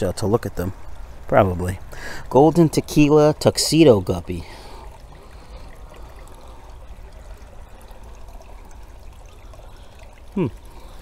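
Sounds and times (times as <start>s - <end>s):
water trickling into pond: 0.0s - 11.0s.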